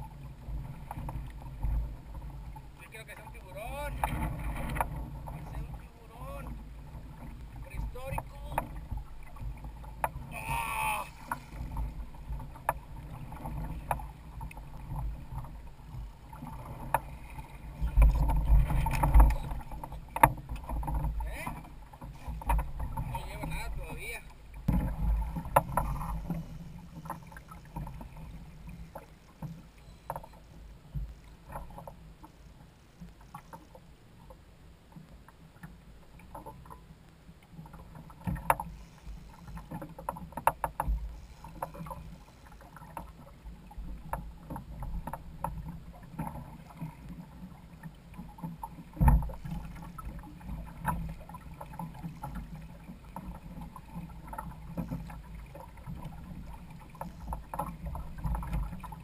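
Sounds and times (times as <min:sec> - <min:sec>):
knocks and clicks from boat: 0:00.0 - 0:59.0
water sloshing against hull: 0:00.0 - 0:59.0.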